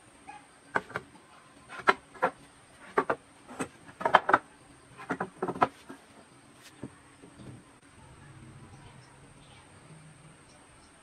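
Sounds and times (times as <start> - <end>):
wooden planks knocking: 1.7 - 4.4, 5.0 - 6.0.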